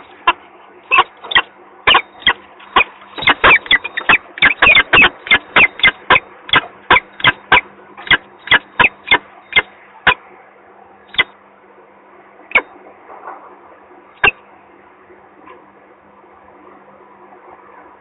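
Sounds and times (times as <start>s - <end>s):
falcon chip calls: 0.0s - 10.2s, 11.1s - 11.3s, 12.5s - 12.7s, 14.2s - 14.4s
steady low hum: 0.0s - 18.0s.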